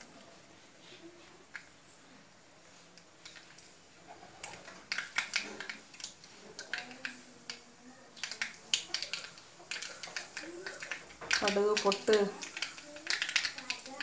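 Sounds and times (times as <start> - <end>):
mustard seeds popping in oil: 4.4 - 14.0.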